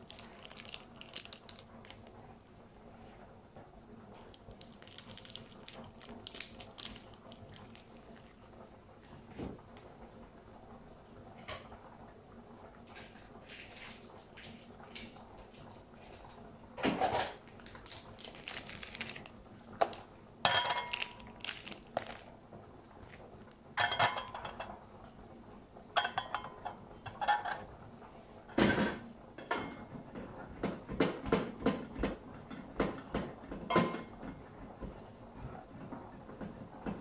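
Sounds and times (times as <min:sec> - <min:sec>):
dishes and utensils clattering: 0:20.4 - 0:21.2, 0:23.8 - 0:24.8, 0:26.0 - 0:27.7, 0:28.6 - 0:34.2.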